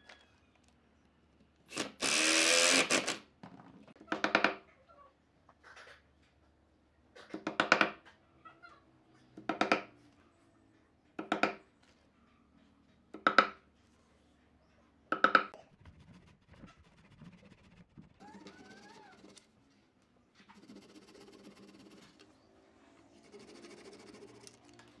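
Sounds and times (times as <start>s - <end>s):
hammer knocking dowels into wood: 9.4s - 9.9s, 13.2s - 13.6s, 15.1s - 15.5s.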